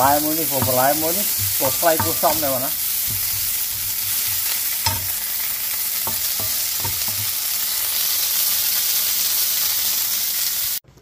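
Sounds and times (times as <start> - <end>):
spatula knocking against pan: 0.0 - 5.4, 6.0 - 7.4
vegetables sizzling in frying pan: 0.0 - 10.8.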